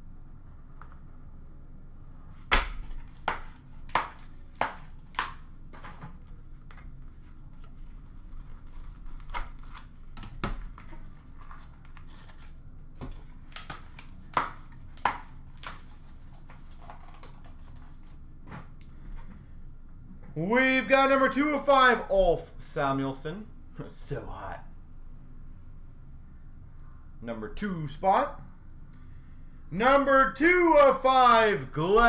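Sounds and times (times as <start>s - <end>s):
plastic crinkling: 3.8s - 18.2s
packaging clicks and snaps: 13.4s - 15.9s.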